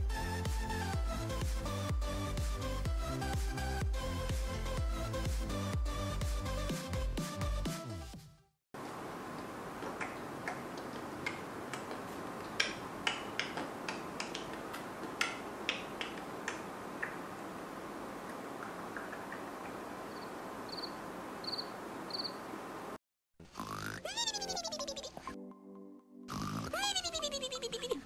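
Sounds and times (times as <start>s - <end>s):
room hiss: 8.8s - 23.0s.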